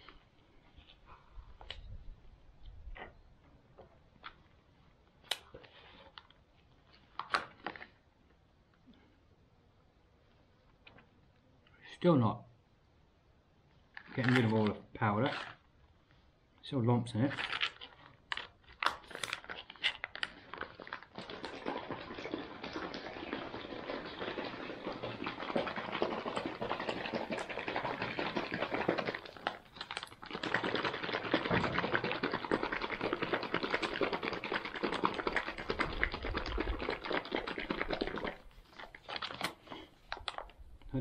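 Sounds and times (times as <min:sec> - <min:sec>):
plastic pouch shaken rattling: 0:17.3 - 0:40.6.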